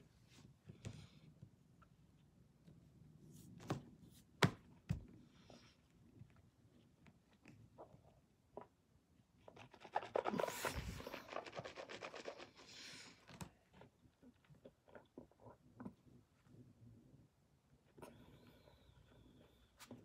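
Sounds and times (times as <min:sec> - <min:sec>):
faint scratching and rubbing: 0:09.4 - 0:13.2
clothing brushing microphone: 0:09.8 - 0:12.6.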